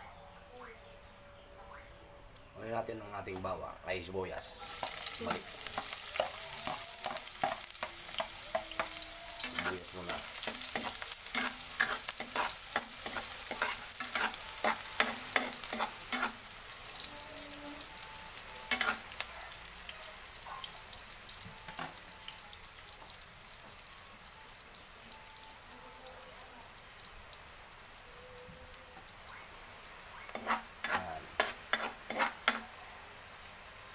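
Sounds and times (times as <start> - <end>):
onion and garlic sizzling in oil: 2.7 - 33.9
metal spoon scraping wok: 4.6 - 16.5, 18.7 - 19.1, 30.3 - 32.7.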